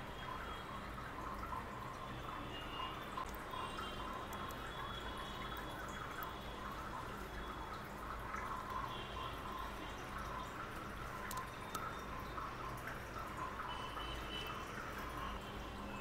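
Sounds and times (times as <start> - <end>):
small animal licking and chewing: 10.2 - 11.9.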